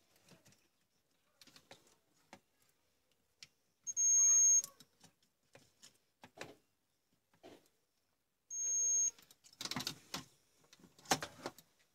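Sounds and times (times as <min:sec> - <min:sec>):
multimeter continuity beep: 0:03.9 - 0:04.7, 0:08.5 - 0:09.2.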